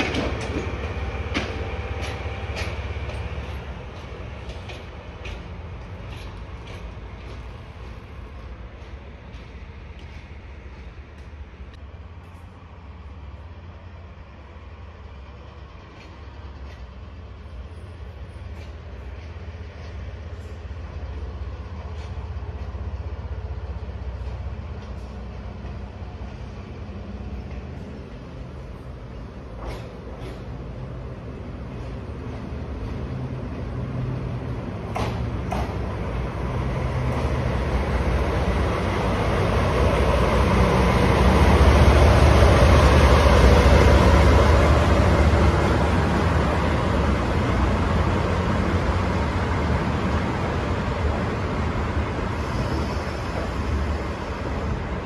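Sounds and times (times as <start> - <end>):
wheels clanking over rail joints: 0.0 - 12.5, 27.1 - 53.8
diesel locomotive engine drone: 0.0 - 55.0.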